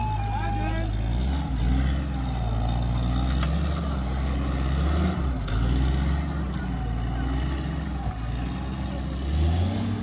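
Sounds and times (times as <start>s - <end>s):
jeep engine rumbling: 0.0s - 10.0s.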